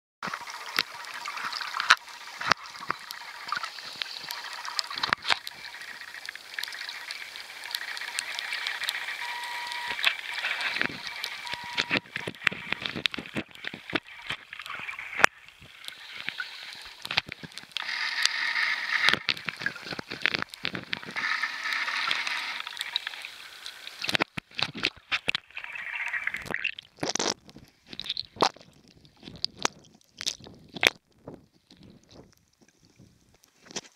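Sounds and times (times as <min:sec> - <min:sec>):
sharp underwater clicks and crackles: 0:00.2 - 0:33.9
muffled underwater hiss: 0:00.3 - 0:26.5.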